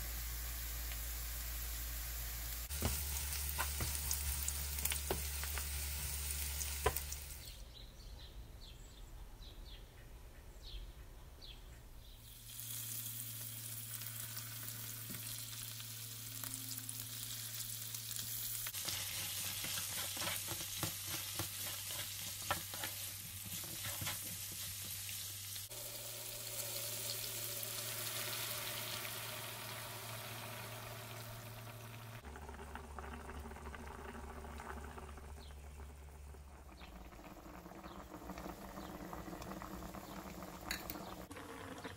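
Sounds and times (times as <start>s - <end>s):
food sizzling in hot oil: 0.0s - 7.6s, 12.2s - 35.0s
spatula scraping pan: 18.8s - 25.0s
broth bubbling at the boil: 25.6s - 41.9s.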